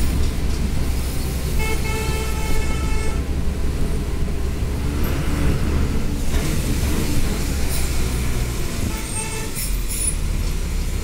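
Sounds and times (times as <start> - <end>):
vehicle horn honk: 1.6 - 3.2.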